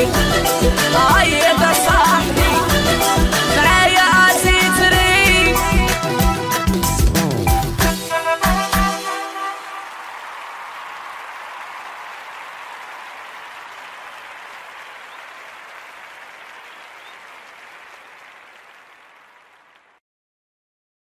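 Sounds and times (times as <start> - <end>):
applause: 8.4 - 20.0.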